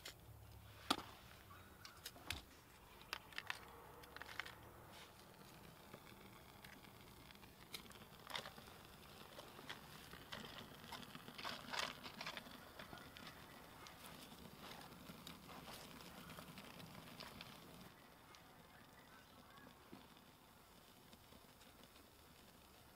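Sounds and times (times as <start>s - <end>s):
small fire crackling: 0.0s - 22.9s
twigs rustling and snapping: 1.8s - 18.4s.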